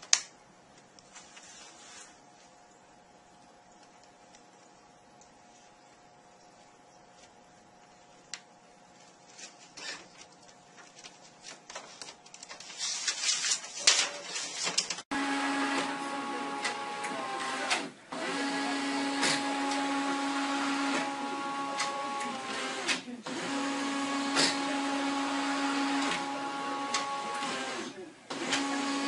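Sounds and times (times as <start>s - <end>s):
clicks and rustling: 9.2s - 15.0s
small motorised machine whining: 15.1s - 29.0s.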